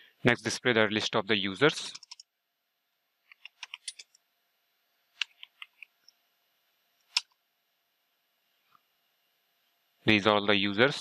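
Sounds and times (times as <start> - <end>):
keyboard keys clicking: 1.9 - 2.2.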